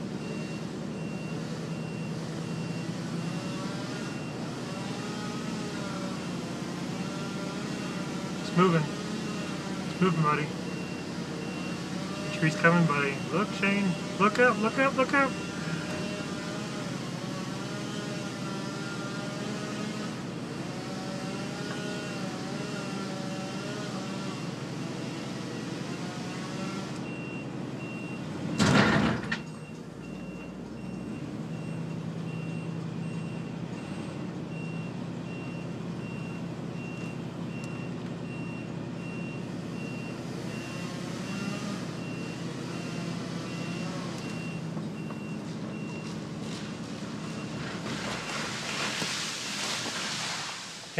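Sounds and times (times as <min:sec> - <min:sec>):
reversing alarm beeping: 0:00.2 - 0:05.4, 0:06.2 - 0:16.7, 0:25.6 - 0:46.1.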